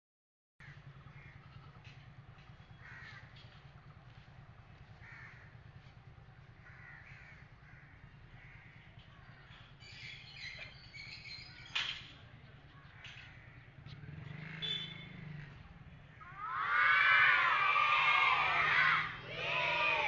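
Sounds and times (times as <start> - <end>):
crows cawing: 0.6 - 1.8, 2.7 - 3.6, 5.0 - 5.8, 6.5 - 9.6, 12.8 - 13.8, 16.1 - 19.0.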